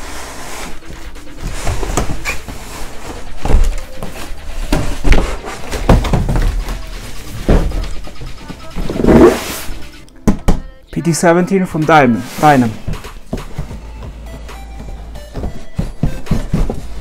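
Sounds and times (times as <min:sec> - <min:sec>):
cardboard rubbing and scraping: 0:00.0 - 0:09.9, 0:15.0 - 0:17.0
boxes thumping on table: 0:04.6 - 0:06.8, 0:14.8 - 0:17.0.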